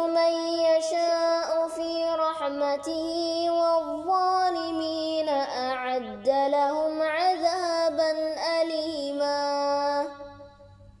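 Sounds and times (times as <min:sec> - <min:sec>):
person chanting a recitation: 0:00.0 - 0:10.3.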